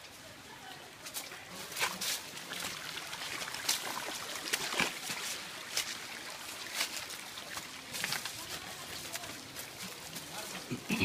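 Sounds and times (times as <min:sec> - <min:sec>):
stream trickling: 0:00.0 - 0:11.0
footsteps crunching on leaves and stones: 0:03.6 - 0:10.9.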